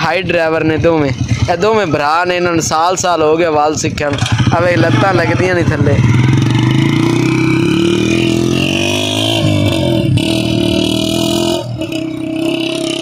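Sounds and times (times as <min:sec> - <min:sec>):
small motorcycle engine: 0:04.1 - 0:13.0.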